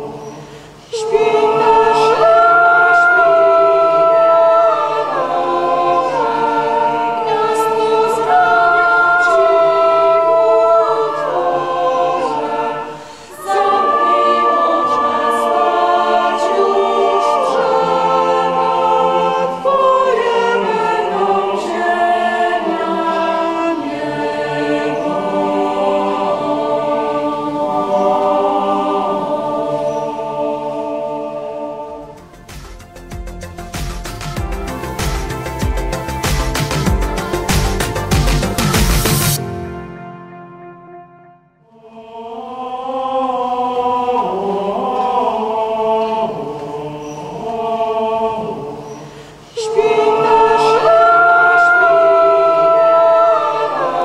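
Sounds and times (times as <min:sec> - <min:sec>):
choir singing a carol: 0:00.0 - 0:54.0
organ accompaniment: 0:01.1 - 0:41.4.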